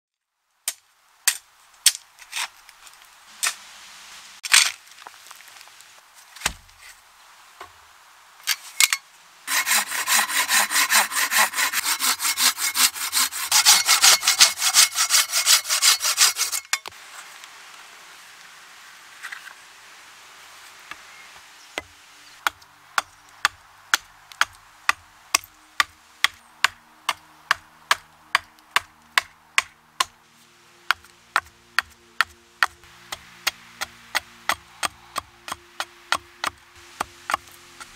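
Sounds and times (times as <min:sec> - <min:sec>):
hatchet chopping wood: 0:06.4 - 0:06.8, 0:21.8 - 0:30.2, 0:30.9 - 0:37.9
hand saw cutting wood: 0:09.5 - 0:16.8.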